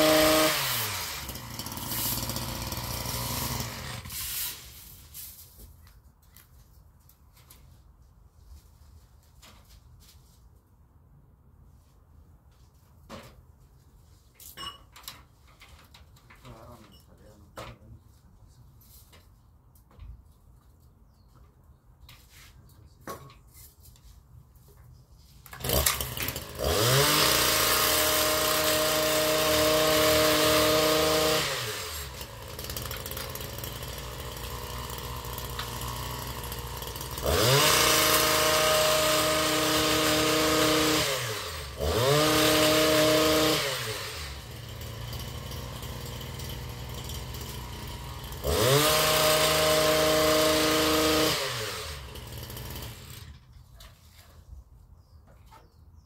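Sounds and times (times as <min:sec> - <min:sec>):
hedge trimmer engine revving: 0:00.0 - 0:04.4, 0:25.5 - 0:53.5.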